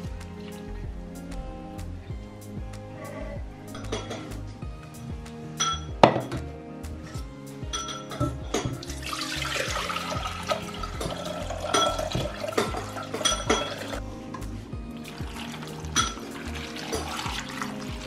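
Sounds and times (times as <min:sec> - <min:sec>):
background music: 0:00.0 - 0:18.0
water splashing into saucepan: 0:15.0 - 0:18.0.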